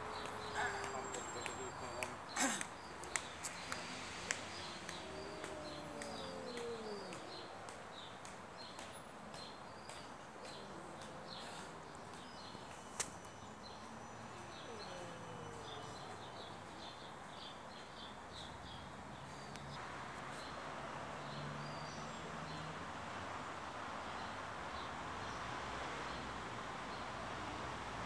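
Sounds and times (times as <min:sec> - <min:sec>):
cats yowling: 0:00.0 - 0:02.6, 0:03.6 - 0:07.6, 0:14.0 - 0:16.8
small birds chirping: 0:00.0 - 0:19.8.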